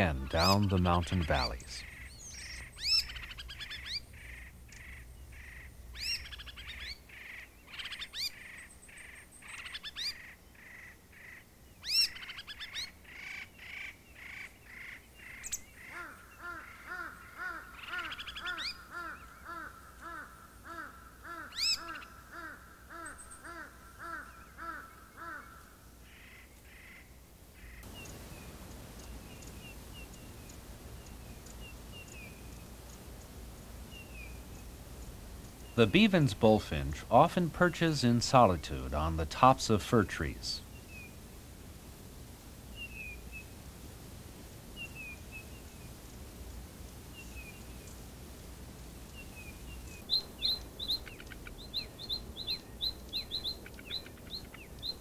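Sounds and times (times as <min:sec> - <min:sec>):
faint high bird calls: 0:00.0 - 0:33.0, 0:49.1 - 0:55.0
steady hiss: 0:00.0 - 0:55.0
laughing thrush whistled calls: 0:01.7 - 0:10.3, 0:11.8 - 0:12.9, 0:21.4 - 0:22.1.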